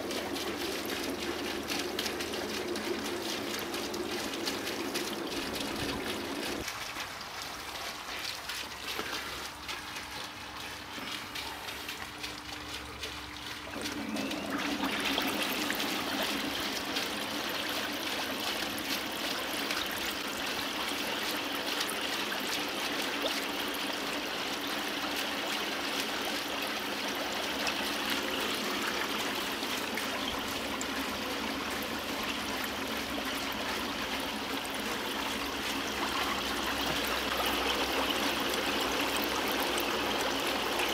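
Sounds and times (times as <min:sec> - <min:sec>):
water bubbling and churning: 0:00.0 - 0:40.9
air pump humming: 0:10.2 - 0:17.3.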